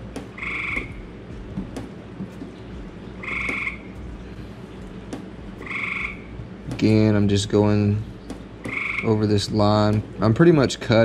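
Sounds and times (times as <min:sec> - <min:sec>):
frog trilling calls: 0:00.4 - 0:01.1, 0:03.2 - 0:04.0, 0:05.6 - 0:06.4, 0:08.6 - 0:09.2.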